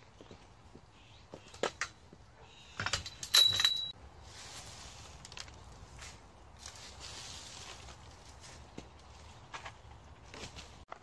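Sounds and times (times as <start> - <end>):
sharp ringing clink: 3.1 - 4.0
pine needles rustling: 4.0 - 10.8.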